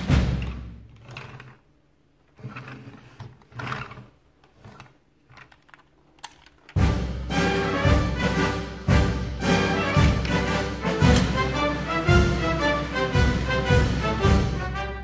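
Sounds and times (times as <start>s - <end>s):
plastic toy truck clicking: 2.3s - 6.8s
background music: 6.7s - 15.0s.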